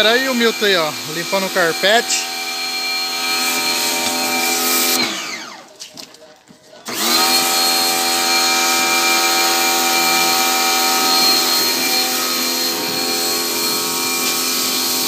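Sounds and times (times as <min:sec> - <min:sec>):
water jet spraying: 0:00.0 - 0:05.0
pressure washer motor humming: 0:00.0 - 0:05.6, 0:06.8 - 0:15.0.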